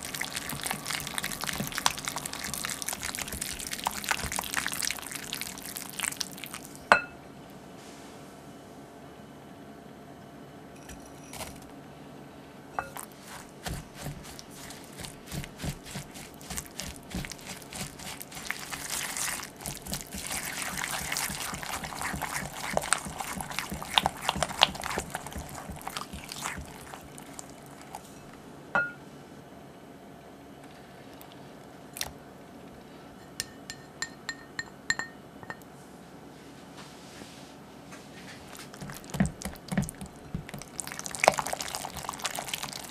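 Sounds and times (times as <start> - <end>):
whisk scraping glass bowl: 0.0 - 5.4, 12.8 - 28.3, 38.5 - 42.9
glass clink: 6.9 - 7.2, 12.8 - 13.0, 28.8 - 29.0, 33.2 - 35.6.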